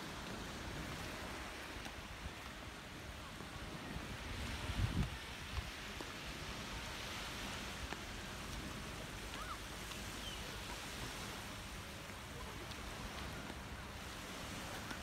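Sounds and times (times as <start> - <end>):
distant sea surf: 0.0 - 15.0
wind: 0.0 - 15.0.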